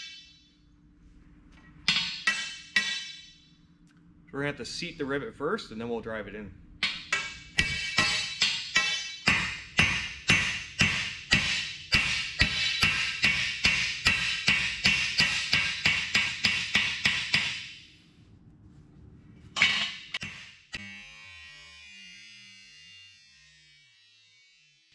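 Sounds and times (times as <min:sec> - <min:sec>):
hammer blows on anvil: 0:01.9 - 0:03.4, 0:06.8 - 0:17.8.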